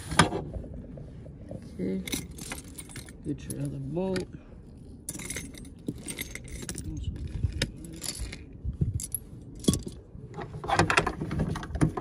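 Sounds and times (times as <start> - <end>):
metal parts clinking: 1.9 - 3.8, 5.0 - 12.0.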